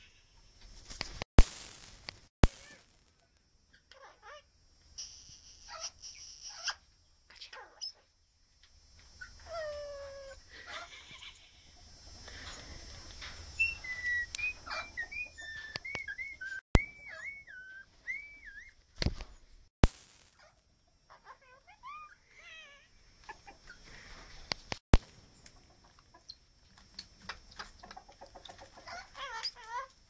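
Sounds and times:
parrot whistled chirps: 0:05.0 - 0:06.8, 0:13.6 - 0:18.8.

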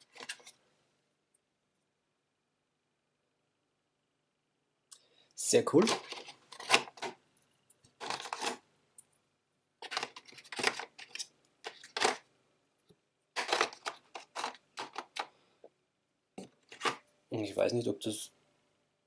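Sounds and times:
plastic clicks and scrapes: 0:00.0 - 0:00.6, 0:05.8 - 0:07.2, 0:07.8 - 0:08.6, 0:09.8 - 0:12.2, 0:13.4 - 0:15.3, 0:16.6 - 0:17.0.

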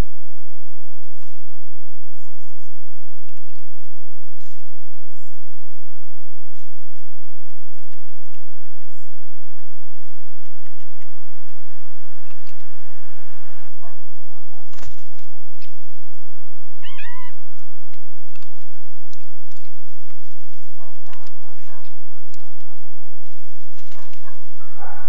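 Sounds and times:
small clicks and taps: 0:03.2 - 0:03.8, 0:06.6 - 0:08.9, 0:17.9 - 0:21.5
short mewing call: 0:16.8 - 0:17.4.

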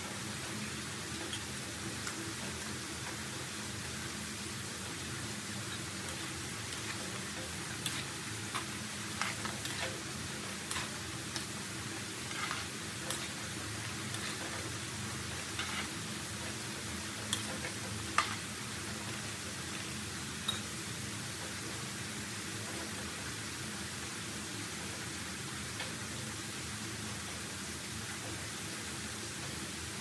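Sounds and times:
potatoes sizzling in oil: 0:00.0 - 0:30.0
metal tongs tapping wok: 0:05.7 - 0:14.6, 0:15.3 - 0:15.9, 0:17.3 - 0:18.5, 0:20.4 - 0:20.7.

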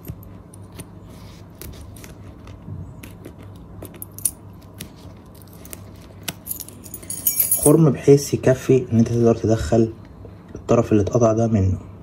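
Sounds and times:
keys jingling on a ring: 0:05.4 - 0:07.8.

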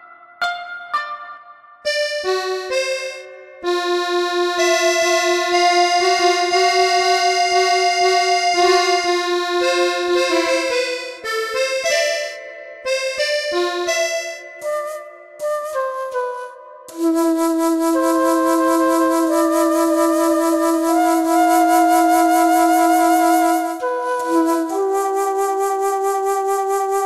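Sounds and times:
instrumental music: 0:00.0 - 0:27.0.

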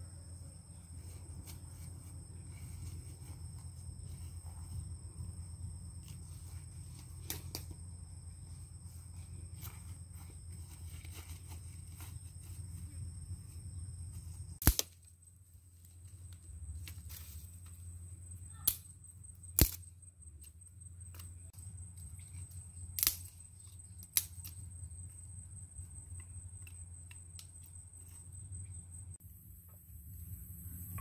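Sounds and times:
dry sticks snapping: 0:14.6 - 0:15.1, 0:18.6 - 0:18.9, 0:19.6 - 0:20.5, 0:22.9 - 0:23.4, 0:24.0 - 0:24.6
twigs crackling: 0:21.1 - 0:24.6.

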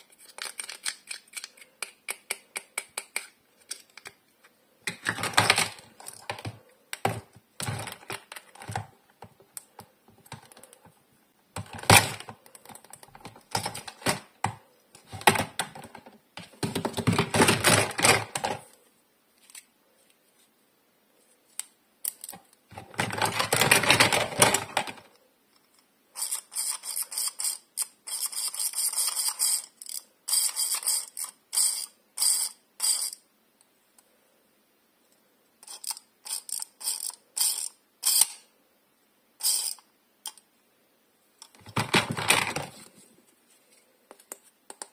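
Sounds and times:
plastic toy pieces clattering: 0:00.0 - 0:04.2, 0:04.8 - 0:08.9, 0:22.0 - 0:25.1.

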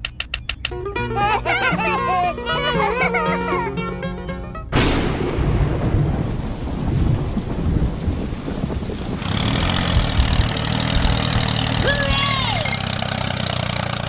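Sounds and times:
thunder rumbling: 0:04.7 - 0:11.8
heavy rain: 0:04.7 - 0:14.0
steady engine: 0:09.2 - 0:14.0.

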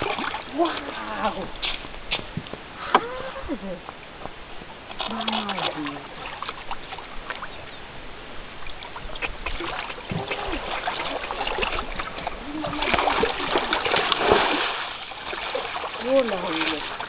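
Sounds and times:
seawater splashing: 0:00.0 - 0:01.9, 0:08.6 - 0:17.0.

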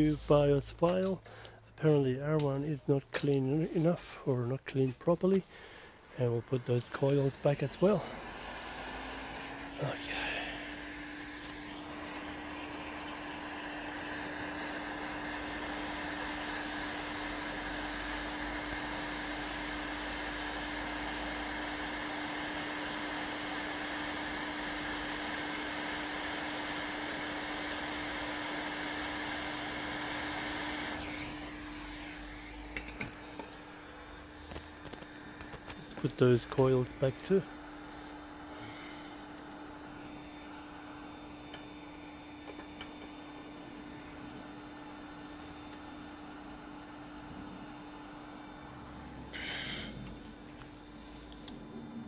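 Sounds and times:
hot air blower hissing: 0:00.0 - 0:52.0.

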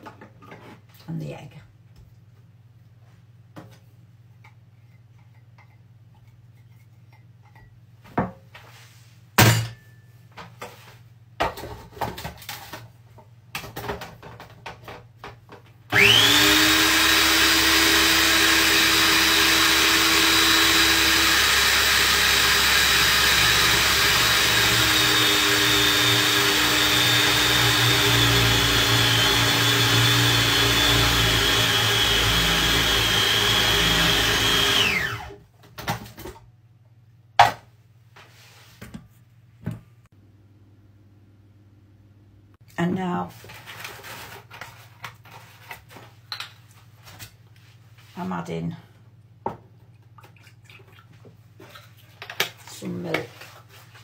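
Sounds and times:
food processor whining: 0:15.9 - 0:35.4.

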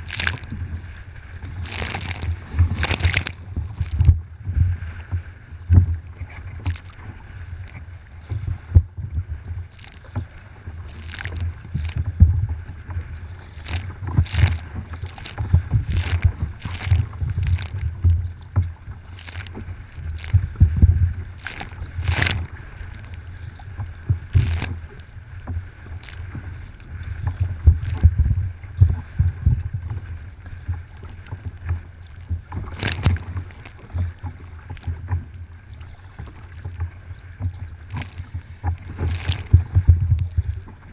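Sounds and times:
waves splashing against plastic hull: 0:00.0 - 0:40.9
wind buffeting microphone: 0:00.0 - 0:40.9.

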